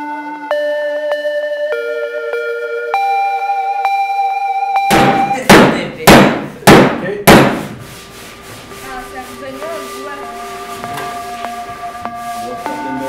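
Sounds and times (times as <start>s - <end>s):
hammer striking steel tool: 4.9s - 7.7s.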